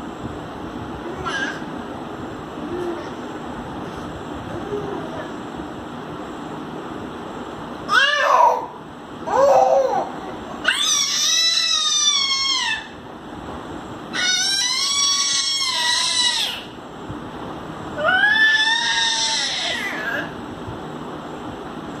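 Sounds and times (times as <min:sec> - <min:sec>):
toddler squealing: 0:09.3 - 0:13.0, 0:14.1 - 0:16.7, 0:18.0 - 0:20.3.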